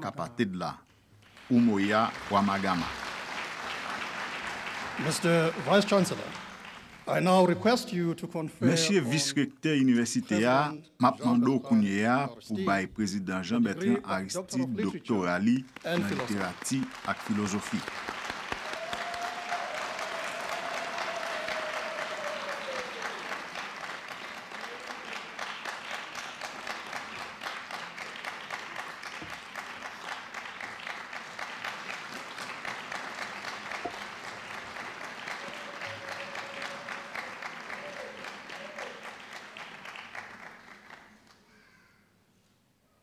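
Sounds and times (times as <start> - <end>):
audience applauding: 1.2 - 7.7, 14.6 - 41.5.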